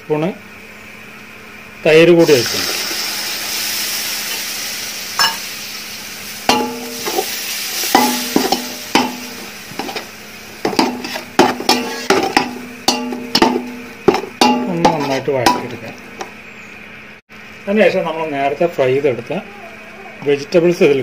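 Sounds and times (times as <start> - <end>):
food sizzling in hot oil: 2.2 - 16.0
metal pot ringing knocks: 6.5 - 7.2, 8.0 - 9.4, 10.7 - 16.3
metal skimmer scraping pot: 8.0 - 16.3.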